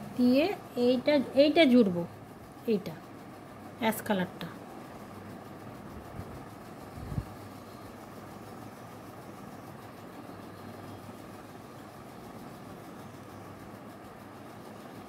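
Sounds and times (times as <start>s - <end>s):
low hum with hiss: 0.0s - 15.0s.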